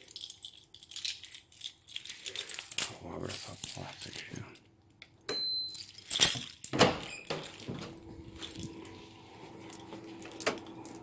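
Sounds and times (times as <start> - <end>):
steady low hum: 7.5 - 11.0.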